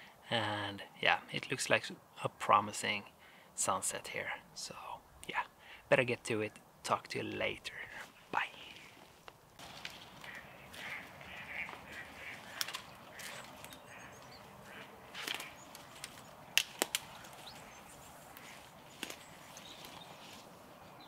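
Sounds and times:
twigs snapping underfoot: 0:08.7 - 0:20.5
footsteps through dry leaves: 0:08.8 - 0:20.8.

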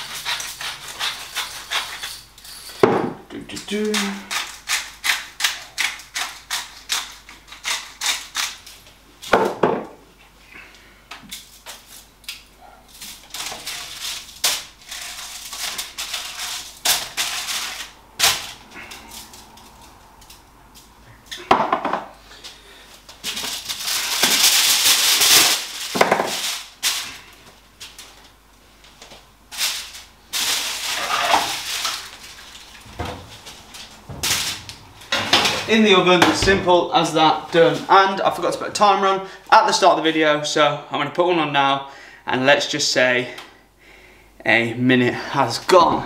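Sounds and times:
scratchy scraping: 0:00.0 - 0:02.7.

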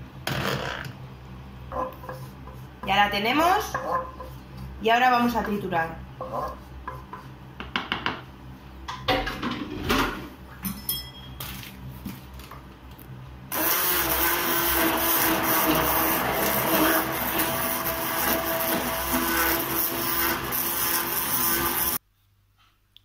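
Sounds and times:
immersion blender running: 0:13.5 - 0:22.0.

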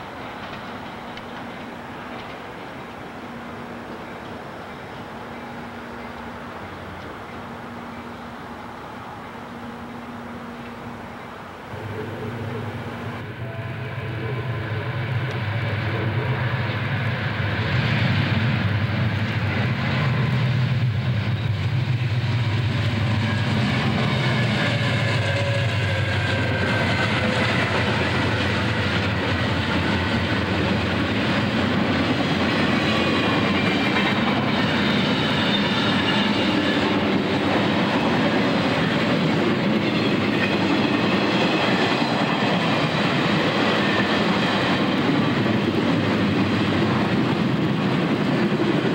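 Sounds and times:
train wheels clattering: 0:00.0 - 0:04.4
locomotive engines droning: 0:00.0 - 0:48.9
wheel squeal: 0:32.8 - 0:37.0.

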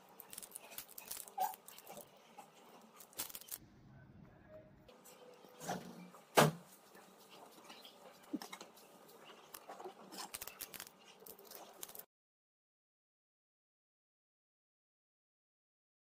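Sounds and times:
sticker paper crinkling: 0:00.0 - 0:02.1, 0:02.7 - 0:03.6, 0:09.2 - 0:12.1.

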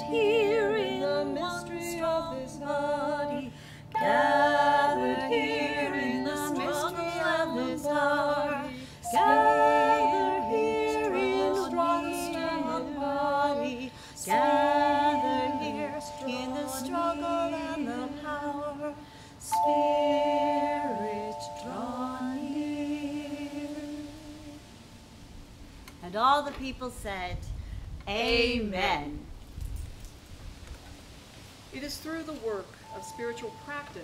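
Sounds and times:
women singing a cappella: 0:00.0 - 0:25.0.

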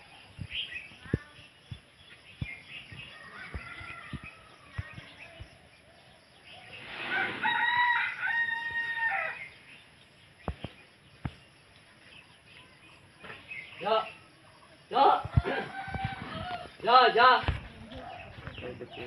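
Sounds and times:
rooster crowing: 0:03.1 - 0:04.8, 0:07.0 - 0:09.5, 0:15.2 - 0:16.8.

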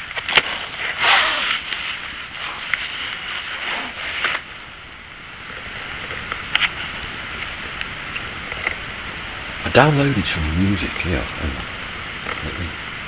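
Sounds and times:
night ambience hiss: 0:00.0 - 0:13.0.

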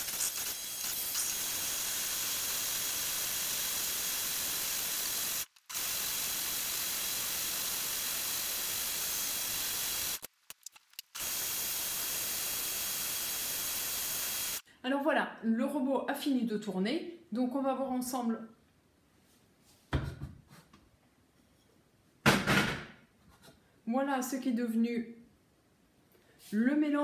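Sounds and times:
blender whirring: 0:00.0 - 0:10.3, 0:11.2 - 0:14.6.

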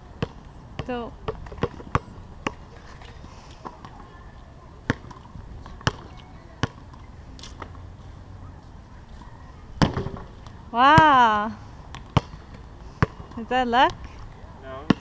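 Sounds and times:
outdoor background: 0:00.0 - 0:15.0
basketball bouncing on hard court: 0:00.2 - 0:02.6, 0:05.8 - 0:06.8.

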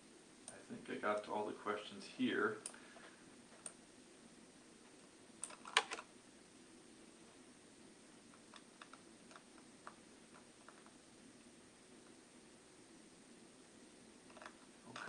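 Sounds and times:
computer mouse clicks: 0:05.4 - 0:06.1, 0:08.3 - 0:11.0, 0:14.3 - 0:15.0.

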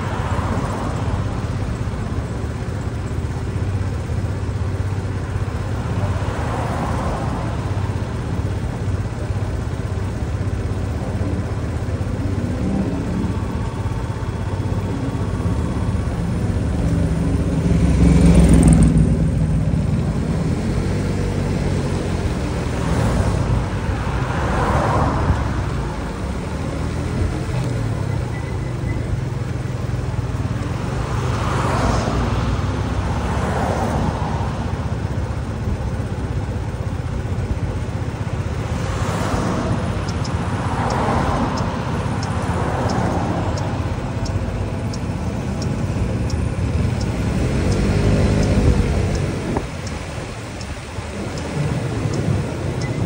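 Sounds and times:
engine idling: 0:00.0 - 0:31.3, 0:32.4 - 0:53.0
vehicles passing: 0:00.0 - 0:53.0.

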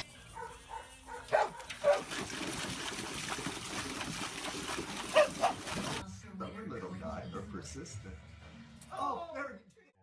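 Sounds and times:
dog barking: 0:00.4 - 0:02.1, 0:05.1 - 0:05.7
dog splashing water in metal bowl: 0:01.4 - 0:06.0.

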